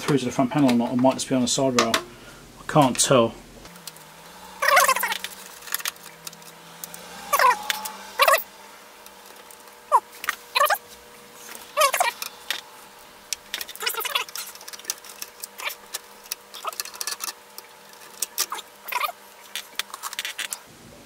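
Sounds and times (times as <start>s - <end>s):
short squeaks: 7.2s - 8.5s, 9.9s - 12.7s
screwdriver turning screw in metal: 13.5s - 20.6s.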